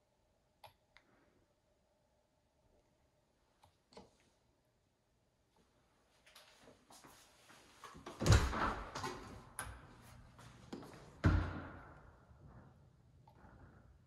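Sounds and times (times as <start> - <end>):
door thumping: 11.2 - 11.9.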